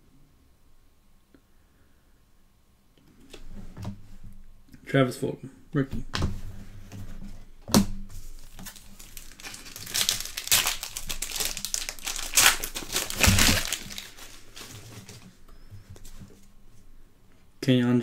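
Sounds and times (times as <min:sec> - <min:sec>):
foil wrapper tearing and crinkling: 0:08.2 - 0:15.2.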